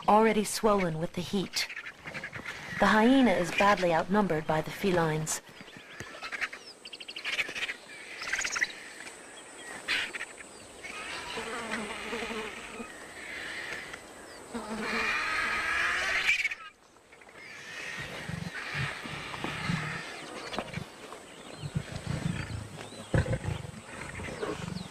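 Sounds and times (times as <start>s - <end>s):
lions snarling and growling: 17.3s - 24.9s.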